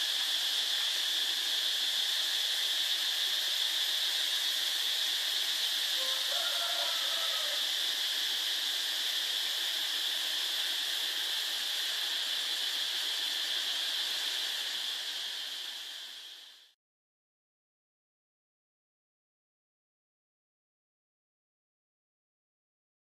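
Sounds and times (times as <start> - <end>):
high-pitched insect chorus: 0.0 - 16.8.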